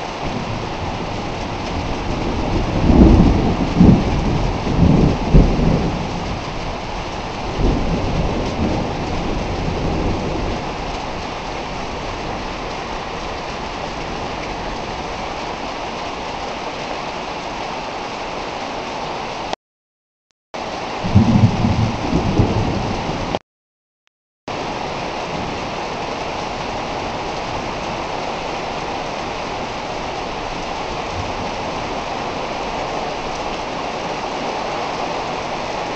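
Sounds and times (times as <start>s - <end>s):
heavy rain pouring: 0.0s - 19.6s, 20.6s - 23.4s, 24.5s - 35.9s
thunder rumbling: 0.2s - 15.4s, 21.0s - 23.4s.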